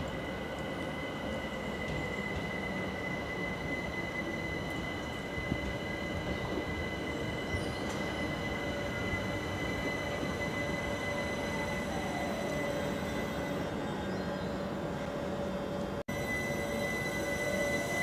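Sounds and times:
high-pitched whine: 0.0 - 18.0
train wheels rumbling on rails: 0.0 - 18.0.

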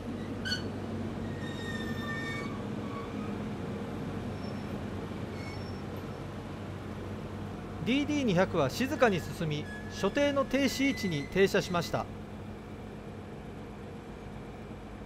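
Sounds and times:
diesel locomotive rolling slowly: 0.0 - 15.0
high-pitched squeals: 8.9 - 11.5.

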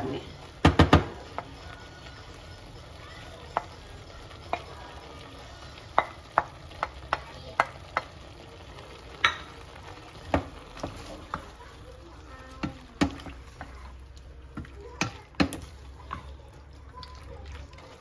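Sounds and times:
utensil clacking against pan: 0.0 - 1.7, 5.9 - 8.2, 12.5 - 16.4
food sizzling in a pan: 0.0 - 18.0.

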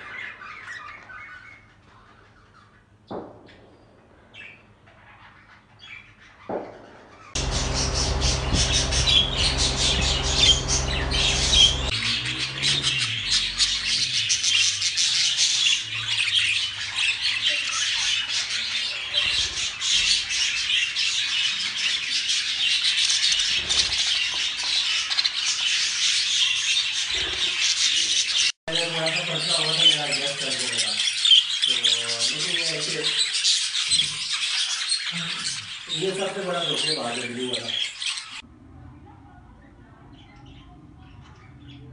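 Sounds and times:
budgerigars chattering and squawking: 7.2 - 38.4
low steady hum: 7.4 - 14.4.

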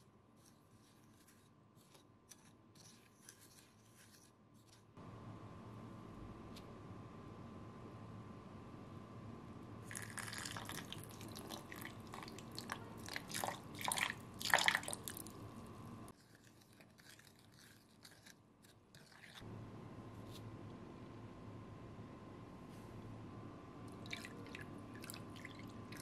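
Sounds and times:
faint steady hum: 0.0 - 26.0
coffee trickling and splashing: 9.9 - 15.4, 24.0 - 26.0.

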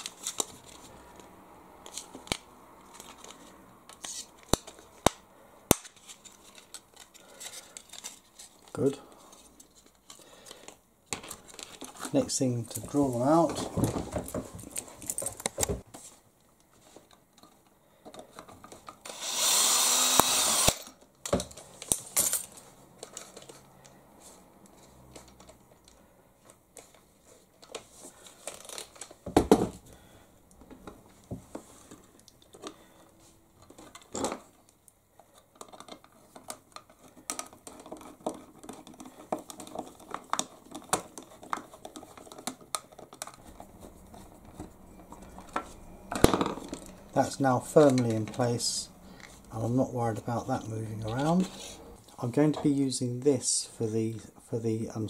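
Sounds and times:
small power drill running: 19.0 - 20.9
small tools clicking and tapping: 35.3 - 43.4.

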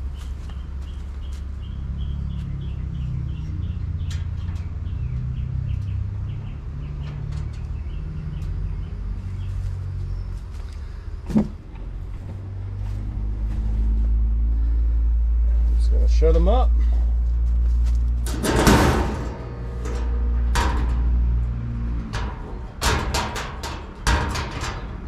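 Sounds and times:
wire racks clicking and scraping: 2.4 - 14.5, 15.8 - 25.0
burner low rumble: 8.5 - 25.0
sharp metal clank: 18.2 - 21.4.

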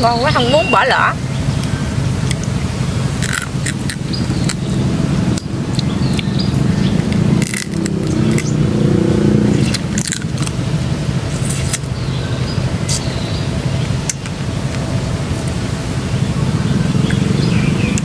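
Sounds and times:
steady low rumble: 0.0 - 18.0
crab shell crunching: 3.2 - 4.7, 5.4 - 8.6, 9.5 - 10.6.

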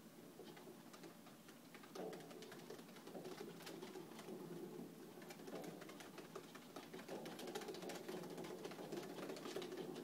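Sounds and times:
treadwheel rumble: 1.9 - 10.0
dog paws clicking on track: 5.2 - 10.0.

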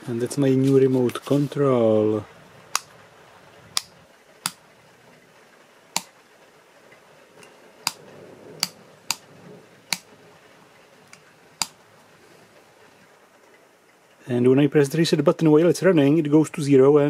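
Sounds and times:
rocker switch clicking: 2.7 - 3.0, 3.7 - 4.6, 5.9 - 6.1, 7.8 - 8.0, 8.6 - 9.3, 9.9 - 10.1, 11.1 - 11.8.

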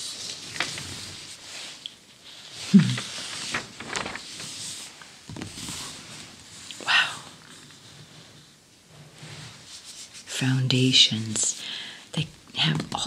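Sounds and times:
paper pages rustling: 0.0 - 1.8, 2.8 - 6.7
soft thump of page: 5.3 - 5.8.

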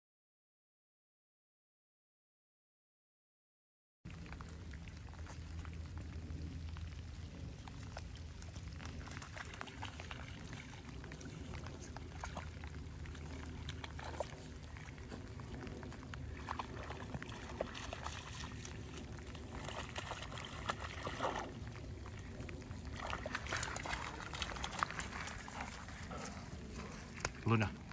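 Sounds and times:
steady low rumble: 4.1 - 27.9
dog splashing in water: 7.5 - 27.2.

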